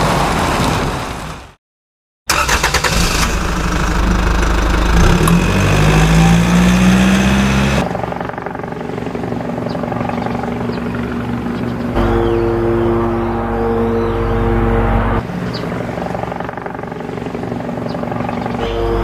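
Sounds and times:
engine running and revving: 0:02.4 - 0:08.6
steady pulsing engine note: 0:03.2 - 0:19.0.

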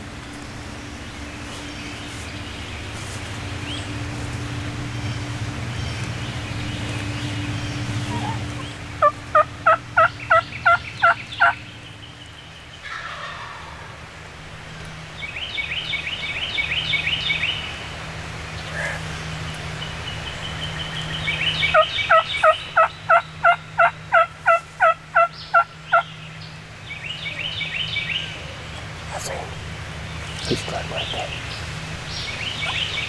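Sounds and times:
turkey gobbling: 0:07.8 - 0:11.6, 0:12.8 - 0:14.0, 0:21.6 - 0:26.1, 0:32.5 - 0:32.9
turkey yelps: 0:08.0 - 0:11.6, 0:12.8 - 0:13.9, 0:21.7 - 0:26.0.

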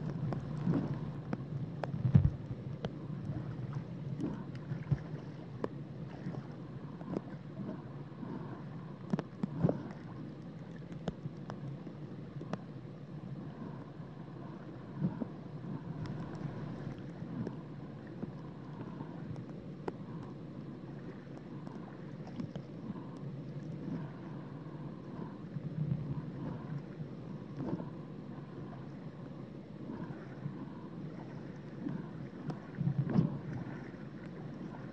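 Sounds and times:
faint clicks and taps: 0:00.0 - 0:03.0, 0:04.2 - 0:05.8, 0:09.0 - 0:11.8, 0:12.4 - 0:12.7, 0:19.3 - 0:20.3, 0:21.4 - 0:23.2
muffled rumble of moving water: 0:00.0 - 0:34.9.

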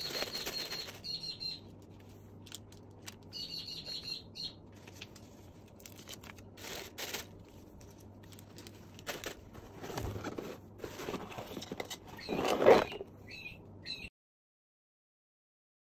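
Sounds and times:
paper and cardboard rustling: 0:00.0 - 0:01.2, 0:04.8 - 0:13.0
cardboard lid scraping shut: 0:09.7 - 0:13.0.

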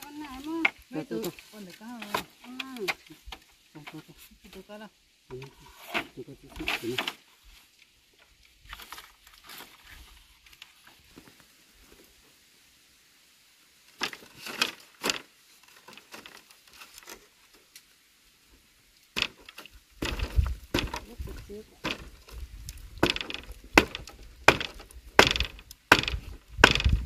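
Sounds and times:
bamboo stakes knocking and rustling: 0:00.0 - 0:12.1, 0:13.8 - 0:27.0.

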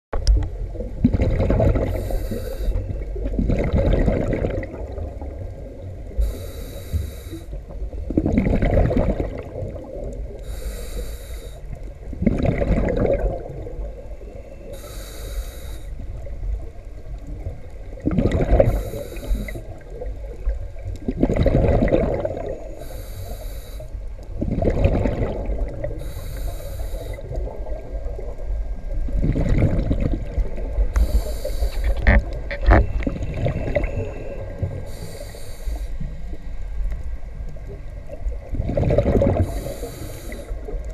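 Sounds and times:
diver exhaling bubbles: 0:00.8 - 0:05.3, 0:08.1 - 0:10.1, 0:12.2 - 0:13.8, 0:18.0 - 0:19.8, 0:21.1 - 0:22.7, 0:24.4 - 0:26.3, 0:29.1 - 0:35.8, 0:38.5 - 0:40.8
regulator hissing on inhale: 0:01.9 - 0:03.1, 0:06.1 - 0:07.7, 0:10.3 - 0:11.9, 0:14.2 - 0:16.3, 0:18.6 - 0:20.0, 0:22.5 - 0:24.2, 0:25.8 - 0:27.6, 0:30.7 - 0:32.2, 0:32.9 - 0:36.4, 0:39.4 - 0:40.8.

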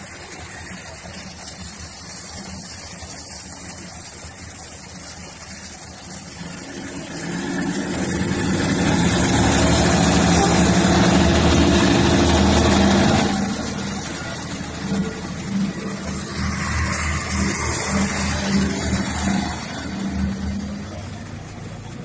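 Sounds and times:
diesel railcar engine: 0:00.0 - 0:22.0.

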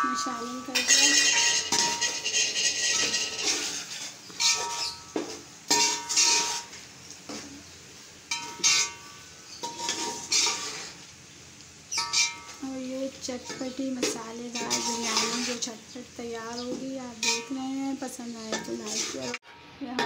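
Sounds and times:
spatula scraping metal pot: 0:00.0 - 0:06.8, 0:08.3 - 0:11.0, 0:11.9 - 0:12.6, 0:13.3 - 0:15.8, 0:16.5 - 0:19.4.

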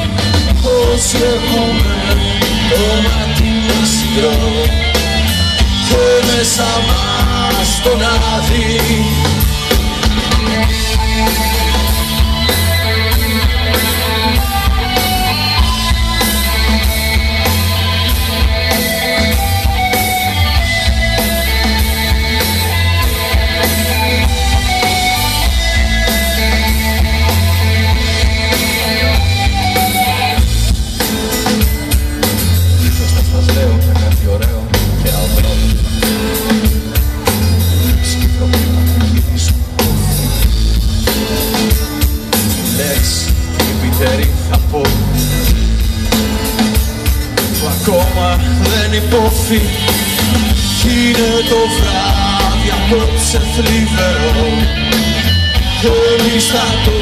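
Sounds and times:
heavy bass drum: 0:00.0 - 0:57.0
live rock band playing: 0:00.0 - 0:57.0.

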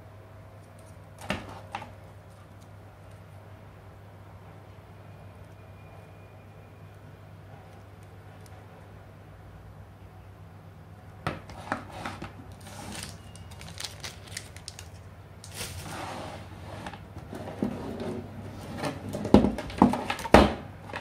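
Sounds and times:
cables rustling: 0:12.4 - 0:16.0.

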